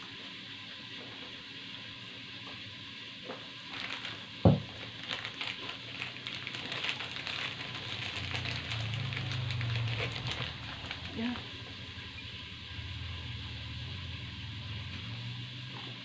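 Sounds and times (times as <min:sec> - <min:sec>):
snack packaging crinkling: 0:03.3 - 0:11.7.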